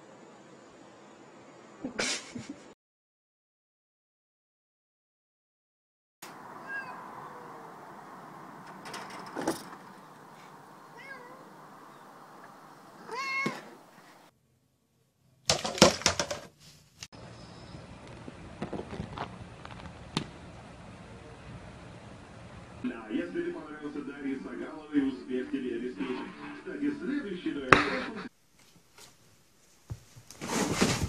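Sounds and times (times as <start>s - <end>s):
cat meowing: 6.4s - 7.8s, 10.8s - 12.0s, 13.0s - 13.8s
loud sharp knocks and clatter: 8.7s - 10.0s, 15.5s - 16.5s.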